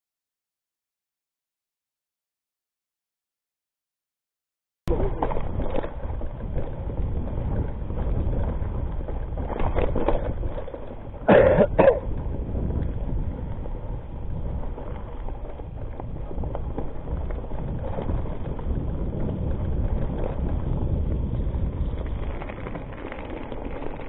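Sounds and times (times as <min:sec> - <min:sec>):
bike tyres rumbling on dirt: 0:04.9 - 0:24.0
wind on microphone: 0:04.9 - 0:24.0.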